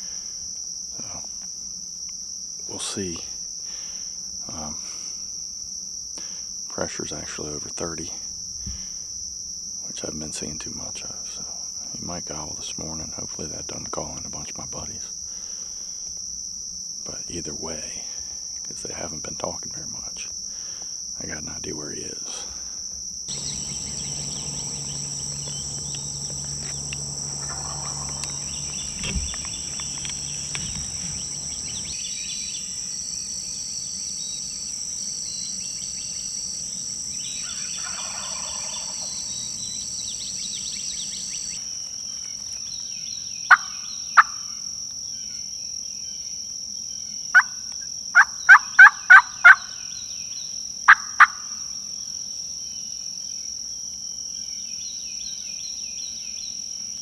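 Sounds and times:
insects trilling: 0:00.0 - 0:57.0
turkey call yelps: 0:23.3 - 0:32.0, 0:37.4 - 0:39.5, 0:43.5 - 0:44.4, 0:48.2 - 0:49.8, 0:50.9 - 0:51.5.

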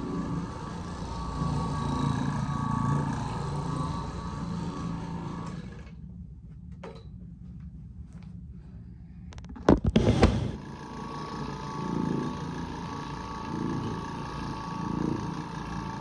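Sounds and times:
floor machine humming: 0:00.0 - 0:06.0, 0:09.4 - 0:16.0.

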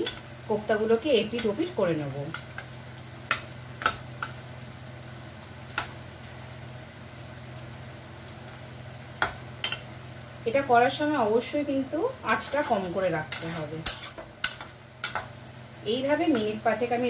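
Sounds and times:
curry sizzling: 0:00.0 - 0:17.0
spatula scraping a pan: 0:12.3 - 0:15.3.

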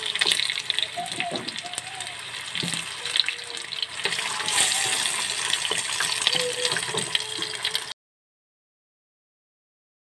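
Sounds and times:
potatoes frying in hot oil: 0:00.0 - 0:07.9.

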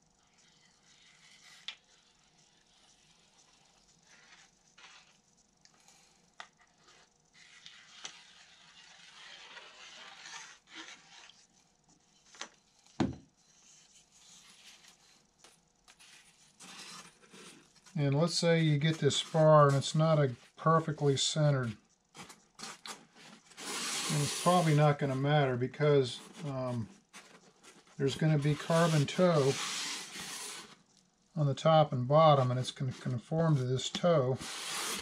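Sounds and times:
soft hissing: 0:13.4 - 0:35.0.

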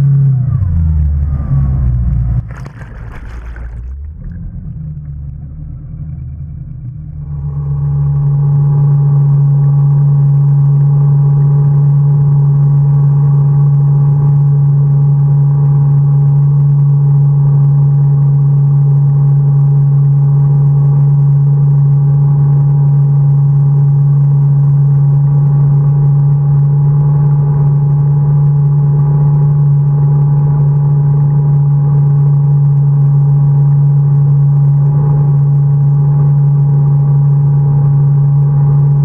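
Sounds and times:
boat engine drone: 0:00.0 - 0:39.0
rush of water: 0:00.7 - 0:05.4.

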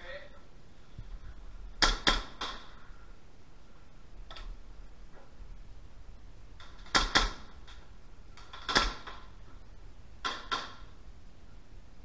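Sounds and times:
airsoft gun shots: 0:01.8 - 0:02.7, 0:06.6 - 0:07.6, 0:08.5 - 0:09.3.

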